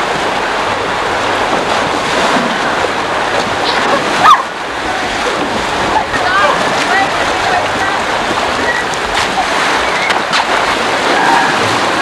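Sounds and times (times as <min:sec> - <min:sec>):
riders splashing: 0:00.0 - 0:12.0.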